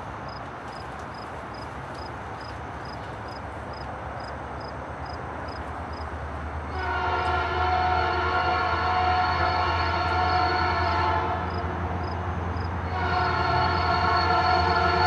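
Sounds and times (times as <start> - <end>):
locomotive air horn chord: 6.7 - 11.8, 12.8 - 15.0.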